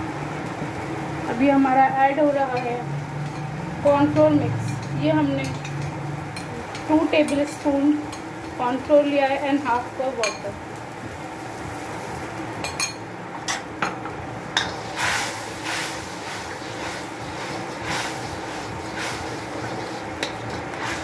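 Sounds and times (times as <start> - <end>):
steady hiss: 14.5 - 21.0.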